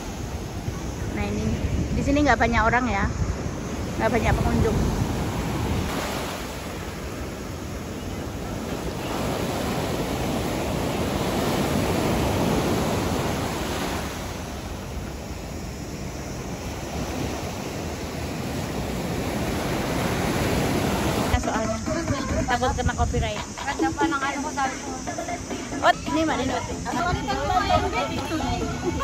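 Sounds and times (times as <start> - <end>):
sea surf breaking over rocks: 3.1 - 22.2.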